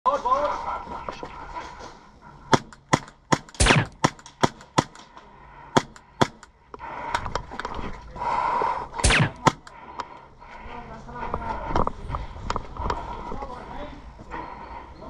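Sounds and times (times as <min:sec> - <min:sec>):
airsoft pistol shots: 0:02.5 - 0:05.0, 0:09.0 - 0:09.7.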